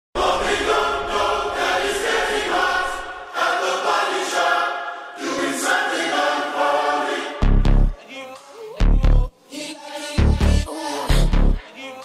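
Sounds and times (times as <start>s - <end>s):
choir singing held chords: 0.2s - 11.8s
low bass: 7.4s - 8.0s, 8.8s - 9.3s, 10.2s - 11.6s.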